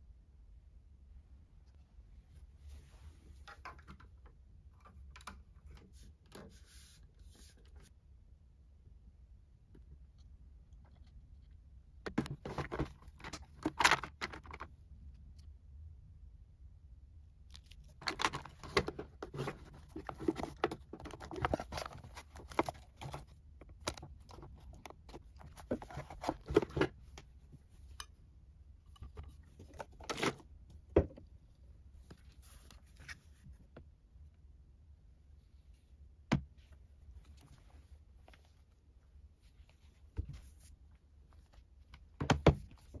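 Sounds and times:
plastic clicking and clattering: 0:12.1 - 0:14.7, 0:17.6 - 0:27.3.

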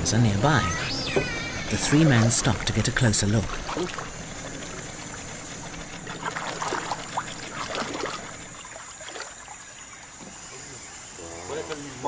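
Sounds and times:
steady background hum: 0:00.0 - 0:11.2
water splashing and trickling: 0:00.0 - 0:12.0
short sharp splashes: 0:06.1 - 0:09.7.

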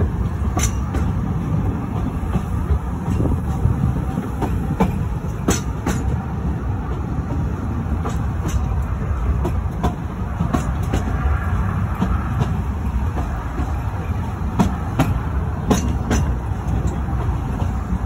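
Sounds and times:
railway carriage rumbling: 0:00.0 - 0:18.0
wheels clicking and clunking: 0:00.0 - 0:18.0.

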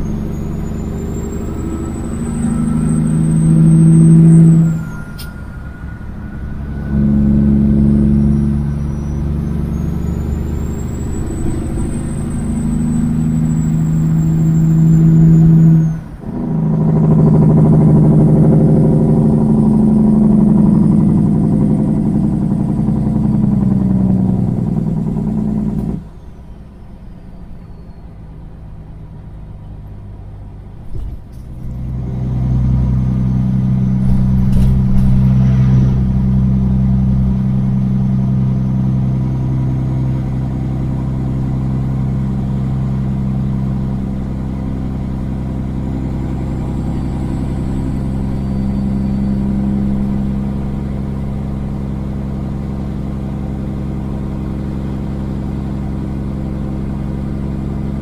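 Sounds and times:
truck diesel engine drone: 0:00.0 - 0:58.0.

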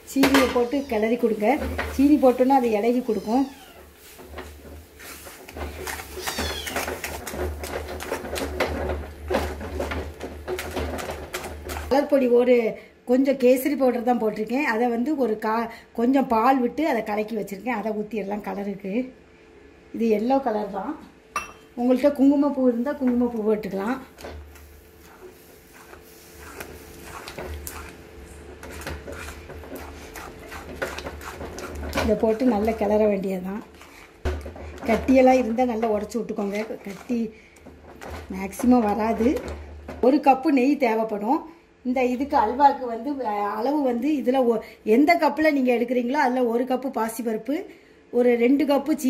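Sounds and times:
metal spoon scraping a pan: 0:00.3 - 0:12.0, 0:23.9 - 0:39.6.

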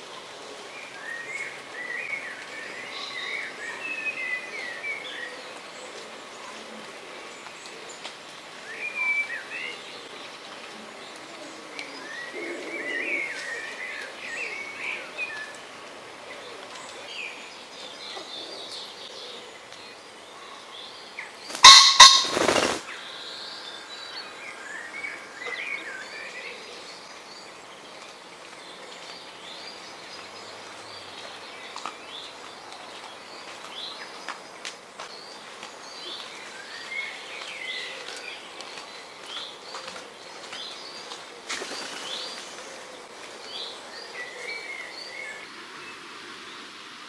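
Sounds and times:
songbirds chirping faintly: 0:00.0 - 0:47.0
pheasant crowing: 0:21.5 - 0:22.8.

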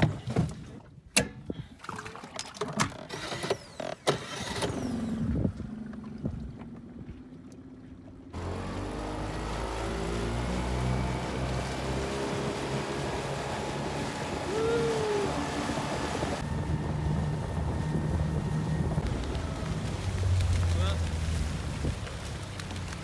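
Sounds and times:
outboard motor running: 0:02.2 - 0:23.0.

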